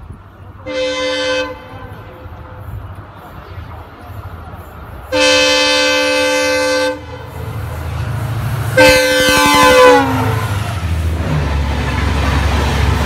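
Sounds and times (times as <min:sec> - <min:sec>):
train coaches rushing past: 0:00.0 - 0:13.0
locomotive air horn blasts: 0:00.6 - 0:02.0, 0:05.1 - 0:07.5, 0:08.7 - 0:10.6.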